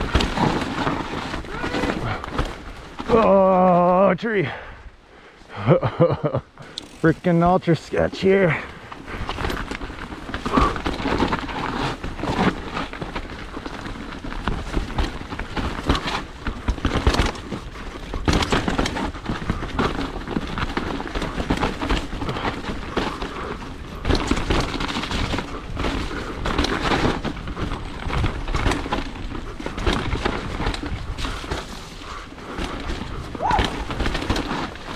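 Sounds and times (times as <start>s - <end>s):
bike rattling and knocking: 0.0s - 4.6s, 5.6s - 34.9s
bike tyres through mud: 0.0s - 4.7s, 5.5s - 34.9s
constant rumbling noise: 0.0s - 34.9s.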